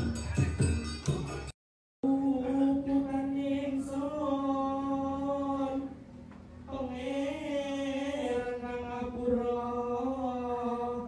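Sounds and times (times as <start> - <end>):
man singing a slow chant: 2.0 - 6.0, 6.7 - 11.0.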